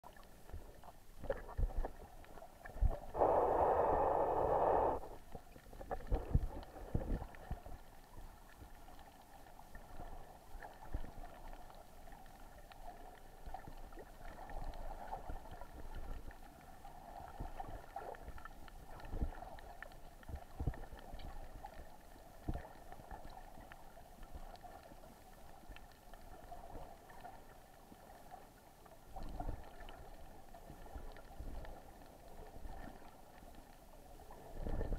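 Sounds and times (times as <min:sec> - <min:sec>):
faint steady hum: 0:00.0 - 0:34.9
rush of bubbles: 0:02.7 - 0:05.2
underwater knocks and thumps: 0:05.8 - 0:07.7.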